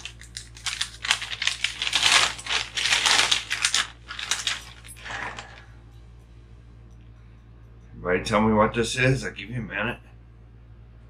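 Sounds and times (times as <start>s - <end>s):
paper bag crinkling: 0.0s - 5.6s.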